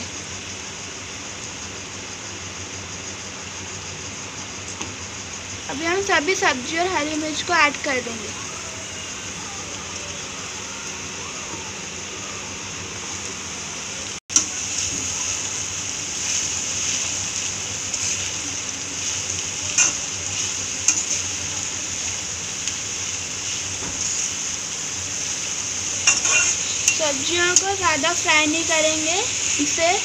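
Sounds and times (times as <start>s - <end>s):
vegetables sizzling in hot oil: 0.0s - 30.0s
metal spatula clinking on pan: 19.8s - 20.0s, 26.0s - 27.0s.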